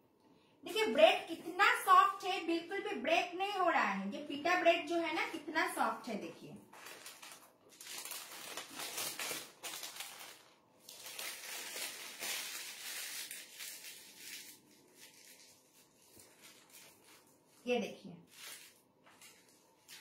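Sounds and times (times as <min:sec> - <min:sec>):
paper crinkling and rustling: 0:06.6 - 0:20.0.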